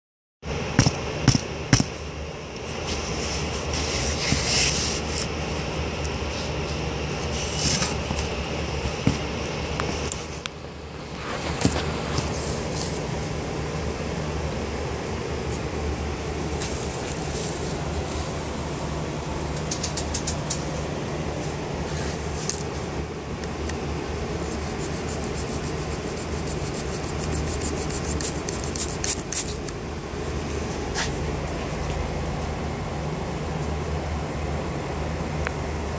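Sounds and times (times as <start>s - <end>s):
low rumble and hum: 0.4s - 35.9s
board scraping against cardboard: 2.8s - 5.6s, 6.2s - 10.2s, 24.4s - 29.6s
knife blade scraping board: 24.4s - 29.7s.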